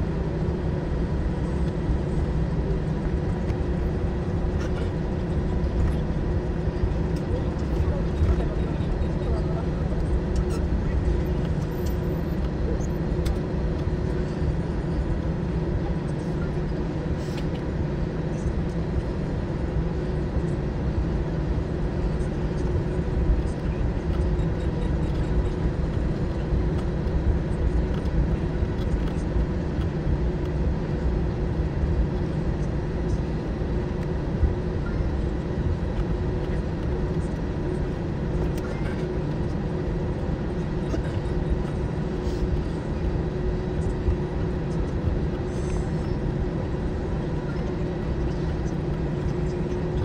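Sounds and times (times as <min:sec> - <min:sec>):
aircraft rolling rumble: 0:00.0 - 0:50.0
jet engines humming: 0:00.0 - 0:50.0.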